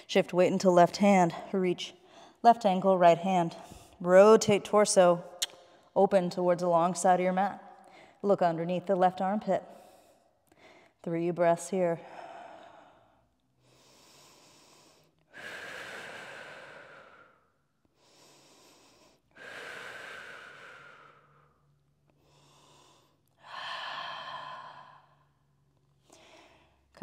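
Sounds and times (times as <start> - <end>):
woman breathing slowly: 2.0 - 2.4, 7.6 - 8.2, 9.6 - 11.0, 11.7 - 27.0.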